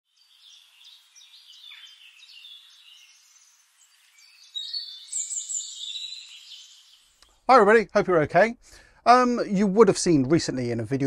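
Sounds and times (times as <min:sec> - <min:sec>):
birds chirping: 0:00.1 - 0:08.9.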